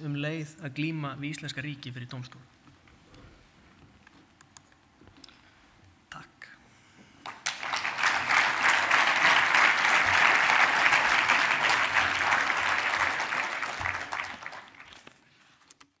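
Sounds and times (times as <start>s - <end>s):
audience applauding: 7.2s - 15.2s.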